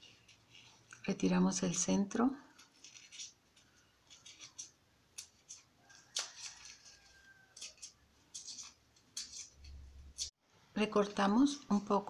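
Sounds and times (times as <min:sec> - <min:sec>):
pencil scratching styrofoam: 0:02.6 - 0:10.3.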